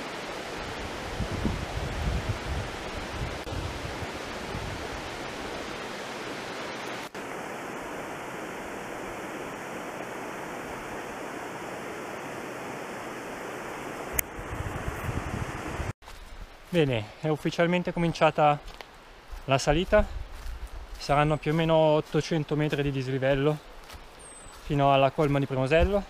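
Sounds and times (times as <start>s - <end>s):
mountain stream rushing: 0.0s - 16.0s
wind rumble on microphone: 0.5s - 5.8s, 14.1s - 16.5s, 19.3s - 21.3s.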